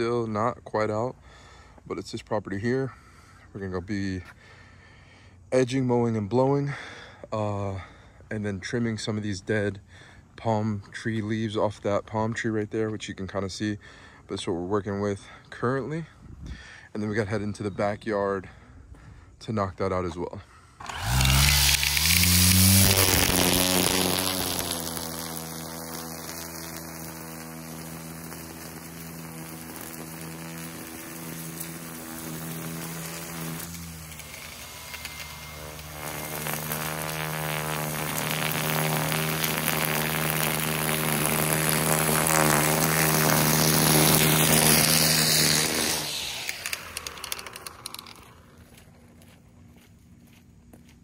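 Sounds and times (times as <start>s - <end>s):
trimmer line cutting hiss: 20.8s - 48.7s
electric string trimmer whining: 20.8s - 49.3s.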